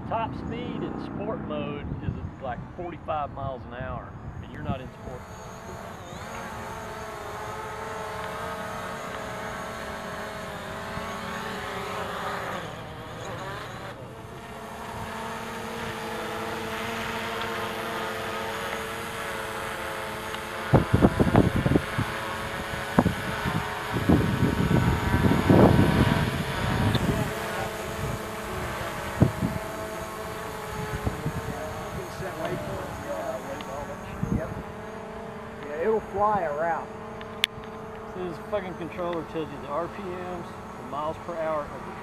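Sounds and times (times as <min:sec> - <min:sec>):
wind buffeting microphone: 0:00.0 - 0:07.2, 0:20.6 - 0:34.8
drone propellers buzzing: 0:00.0 - 0:42.0.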